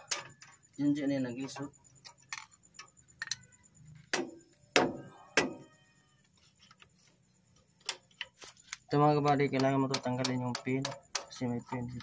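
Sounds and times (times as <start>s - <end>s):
metal tool striking wheel hub: 9.2s - 12.0s.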